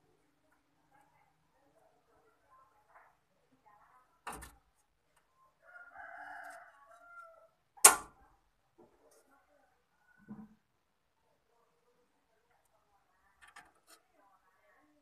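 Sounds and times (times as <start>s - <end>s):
rooster crowing: 5.7s - 7.6s.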